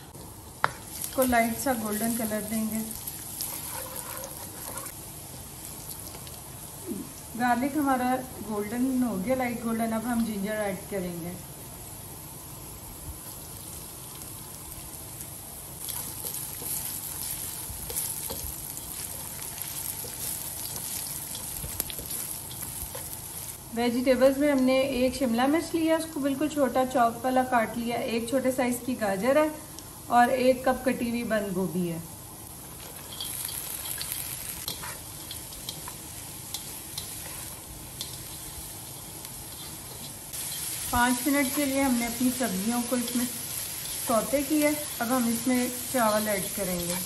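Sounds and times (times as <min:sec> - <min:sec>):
garlic sizzling in hot oil: 0:00.0 - 0:47.0
spatula stirring in wok: 0:00.6 - 0:06.4, 0:15.7 - 0:23.7, 0:32.6 - 0:47.0.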